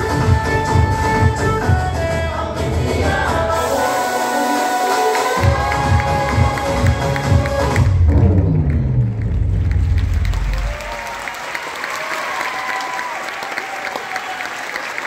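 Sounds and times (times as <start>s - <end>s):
dance music with heavy bass: 0.0s - 10.6s
audience applauding: 8.6s - 15.0s.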